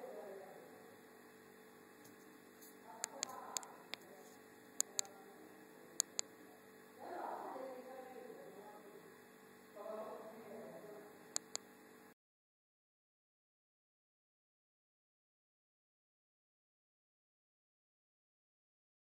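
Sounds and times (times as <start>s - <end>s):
electrical hum and hiss: 0.0s - 12.2s
sharp clicks: 3.0s - 4.1s, 4.8s - 5.1s, 6.0s - 6.3s, 11.3s - 11.6s.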